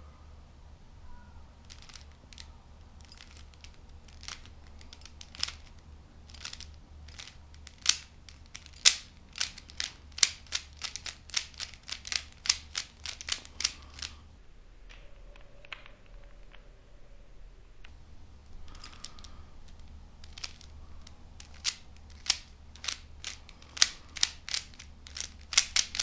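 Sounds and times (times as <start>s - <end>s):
puzzle cube turning clicks: 1.6s - 14.2s, 18.4s - 26.0s.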